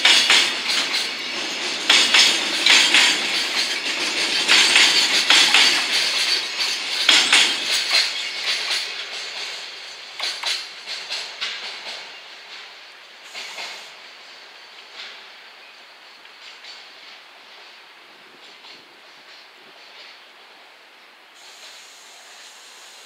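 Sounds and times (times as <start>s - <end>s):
wheels clanking over track joints: 0.0s - 14.0s
freight train rolling past: 0.0s - 23.0s.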